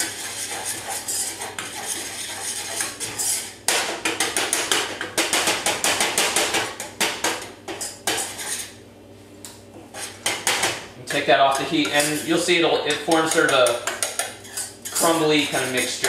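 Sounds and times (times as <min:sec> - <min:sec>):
metal utensil scraping saucepan: 0:00.0 - 0:03.6, 0:07.7 - 0:08.8, 0:09.9 - 0:10.6, 0:11.4 - 0:16.0.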